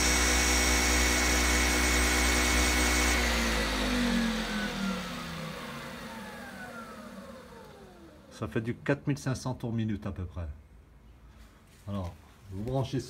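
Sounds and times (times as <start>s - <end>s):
electric motor whining: 0.0s - 8.3s.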